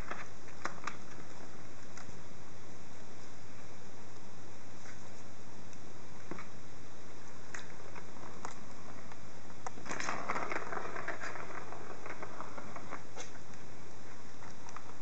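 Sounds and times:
kittens scratching and rattling: 9.7s - 13.4s.

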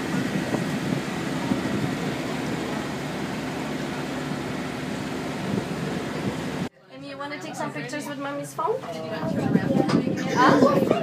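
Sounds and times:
rush of wind and water: 0.0s - 3.8s, 4.5s - 6.7s, 8.9s - 11.0s
boat engine humming: 0.0s - 6.7s.

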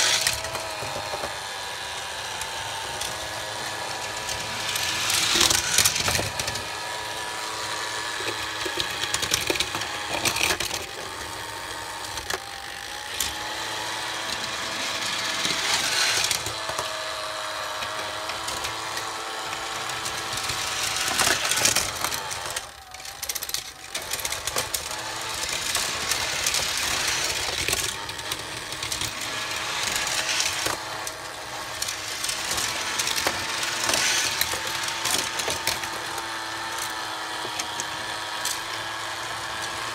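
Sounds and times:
toy cars rattling on plastic track: 0.0s - 39.9s
toy motor whirring: 0.0s - 39.9s.

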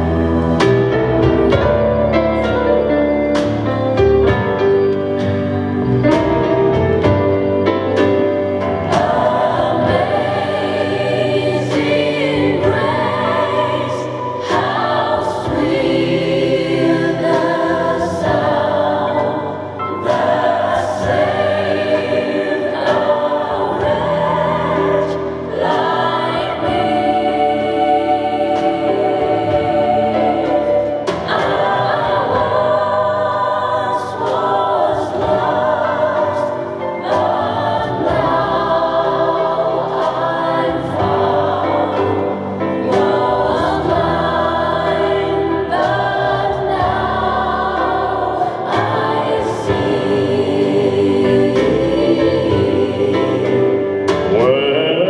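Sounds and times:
choir singing gospel chords: 0.0s - 55.0s.

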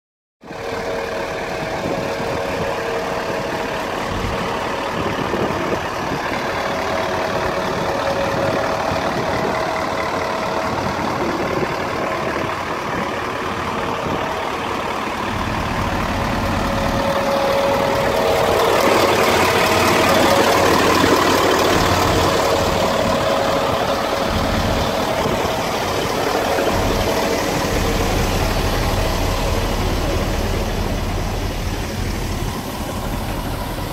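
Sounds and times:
diesel engine idling: 0.4s - 33.9s.

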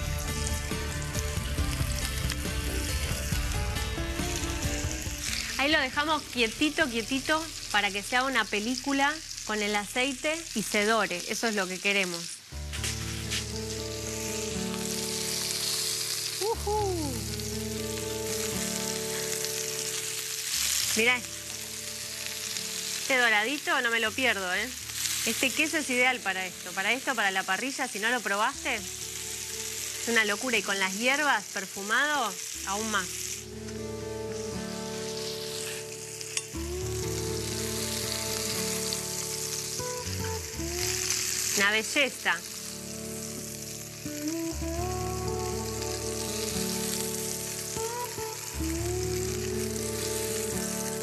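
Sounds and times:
background music with held notes: 0.0s - 6.5s, 33.4s - 51.0s
cheese sizzling in a frying pan: 0.0s - 51.0s
spatula working in a pan: 12.6s - 23.1s, 32.8s - 40.3s.

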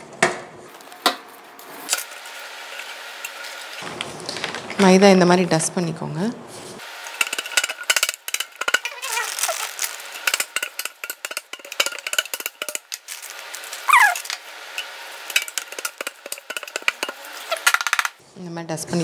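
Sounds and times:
short falling squeak: 13.9s - 14.2s.

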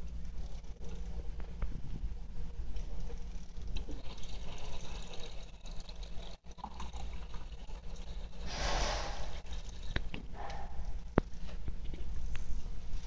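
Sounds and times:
steady low hum: 0.0s - 4.0s, 8.2s - 13.0s
faucet water into plastic cup: 3.7s - 8.5s.

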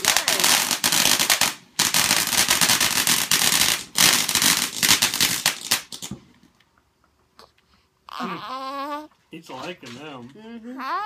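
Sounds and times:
fireworks crackling: 0.0s - 6.6s.

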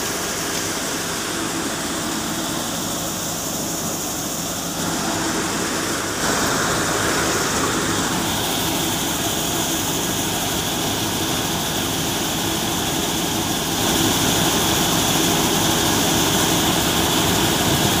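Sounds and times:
thresher and tractor engine droning: 0.0s - 18.0s.

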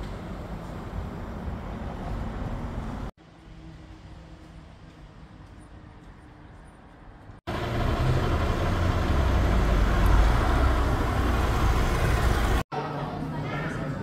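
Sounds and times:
faint street ambience: 0.0s - 14.0s
vehicle passing close: 7.5s - 12.6s.

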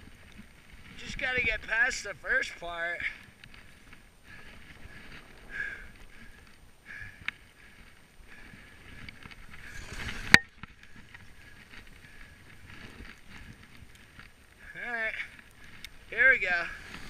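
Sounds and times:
skis hissing through powder snow: 8.4s - 10.4s, 16.0s - 17.0s.

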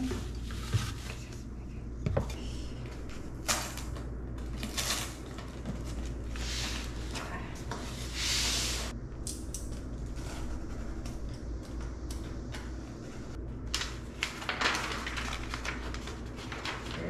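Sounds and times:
paper rustling: 0.0s - 1.5s, 12.5s - 17.0s
steady low hum: 0.0s - 17.0s
cardboard knocks and scrapes: 0.2s - 1.2s.

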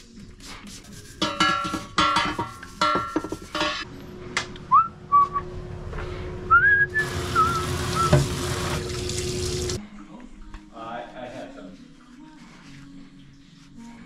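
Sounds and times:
person whistling: 4.7s - 5.5s, 6.5s - 8.2s
tap running into steel basin: 7.0s - 9.8s.

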